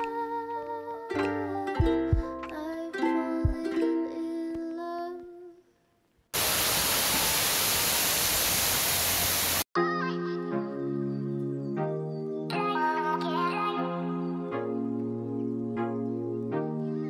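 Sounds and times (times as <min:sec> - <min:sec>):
plucked-string background music: 0:00.0 - 0:05.4
water spray rushing hiss: 0:06.4 - 0:09.7.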